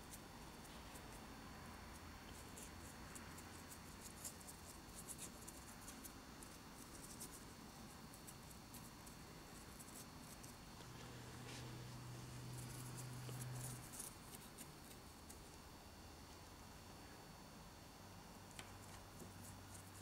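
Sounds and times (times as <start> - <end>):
low steady hum: 0.0 - 20.0
paintbrush scratching on rock: 12.3 - 15.4.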